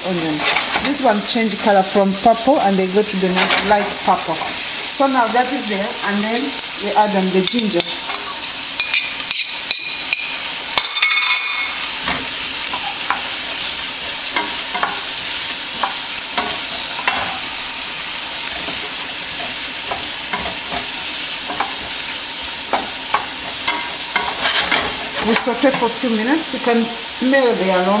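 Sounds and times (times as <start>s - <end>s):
onions sizzling in a pan: 0.0s - 28.0s
wooden spoon scraping a pan: 0.2s - 1.7s, 3.1s - 4.1s, 18.1s - 26.0s
spoon clinking: 8.8s - 11.9s.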